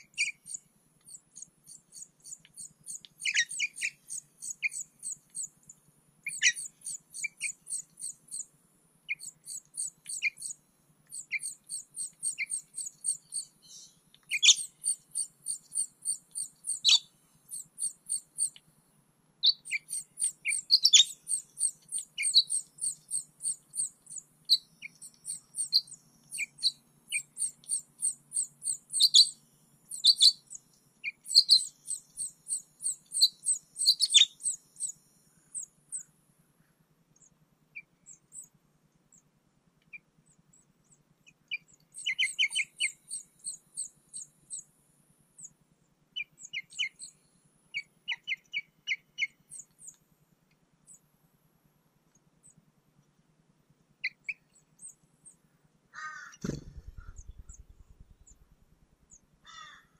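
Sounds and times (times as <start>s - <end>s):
nestling high chirps: 0.0s - 5.5s, 9.1s - 10.6s, 11.2s - 18.6s, 19.4s - 30.4s, 56.4s - 59.2s
faint low hum: 0.0s - 59.9s.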